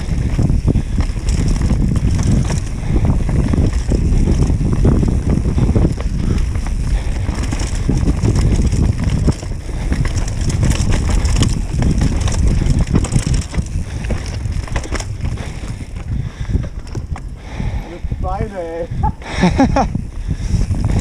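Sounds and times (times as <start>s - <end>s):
bike rattling over bumps: 0.0s - 21.0s
wind buffeting microphone: 0.0s - 21.0s
tyres rolling over dirt and leaves: 0.2s - 16.2s.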